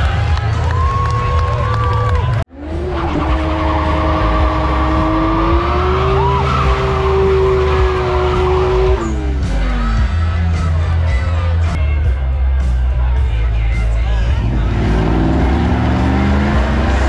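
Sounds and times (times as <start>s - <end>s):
car engine at high revs: 2.5s - 9.7s, 14.4s - 17.0s.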